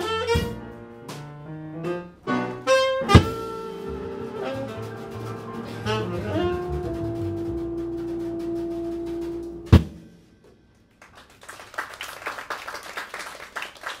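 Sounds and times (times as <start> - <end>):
jazz quartet playing: 0.0 - 10.1
audience clapping: 10.9 - 14.0.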